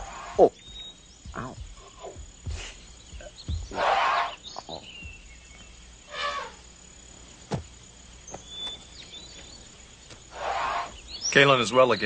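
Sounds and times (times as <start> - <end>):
bird-like chirps: 0.0 - 12.0
jungle ambience: 0.0 - 12.0
wild animal cries: 3.7 - 4.4, 6.1 - 6.6, 10.3 - 11.0.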